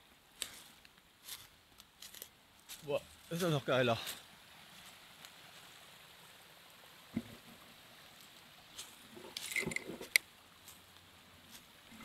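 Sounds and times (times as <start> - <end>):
forest stream rushing: 0.0 - 12.0
footsteps crunching on dry leaves: 0.3 - 5.8, 8.7 - 11.8.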